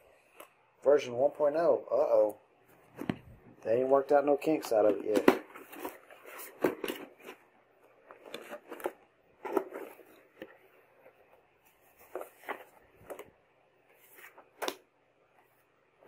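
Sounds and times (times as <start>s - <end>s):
paper rustling: 4.7s - 13.3s.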